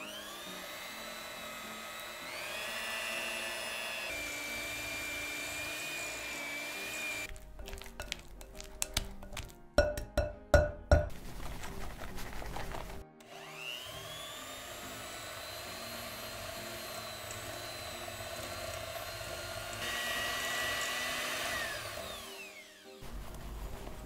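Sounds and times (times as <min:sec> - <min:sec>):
electric hand mixer whining: 0:00.0 - 0:07.4, 0:13.2 - 0:23.1.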